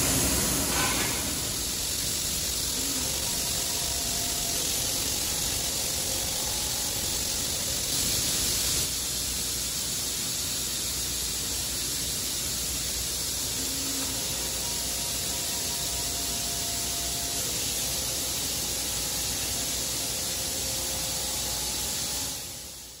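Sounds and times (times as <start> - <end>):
industrial machinery hissing: 0.0 - 23.0
faint humming tones: 13.5 - 23.0.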